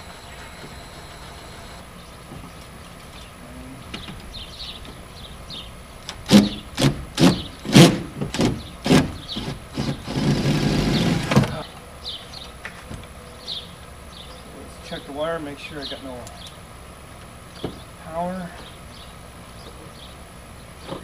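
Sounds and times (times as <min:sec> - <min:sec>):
cordless drill bursts: 0:00.0 - 0:01.8, 0:08.8 - 0:11.5.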